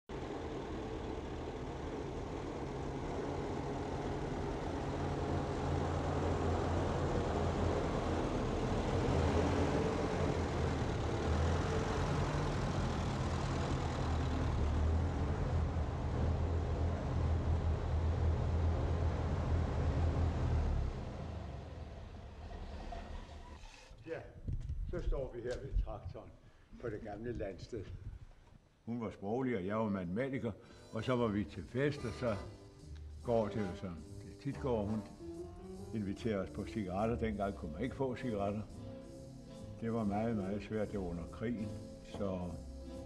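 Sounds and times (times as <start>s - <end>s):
tractor engine running: 0.1s - 23.0s.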